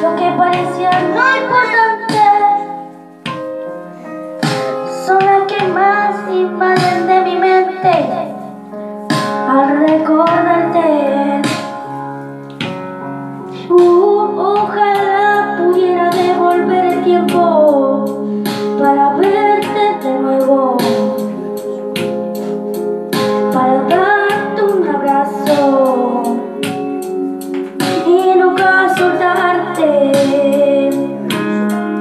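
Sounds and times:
child singing into a microphone: 0.0 - 3.0, 4.8 - 8.5, 9.3 - 11.8, 13.6 - 22.2, 23.2 - 27.0, 27.9 - 31.8
backing track with keyboard chords: 0.0 - 32.0.

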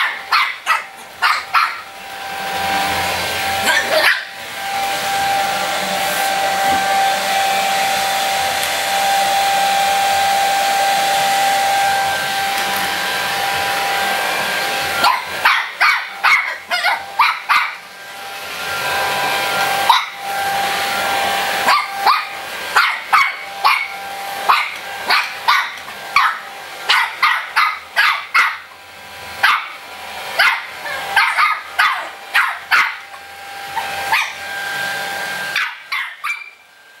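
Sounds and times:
puppy barking: 0.0 - 2.0, 2.9 - 4.5, 14.9 - 17.9, 19.8 - 20.3, 21.5 - 28.8, 29.4 - 34.6, 35.4 - 36.6
hair dryer blowing: 0.0 - 37.0.

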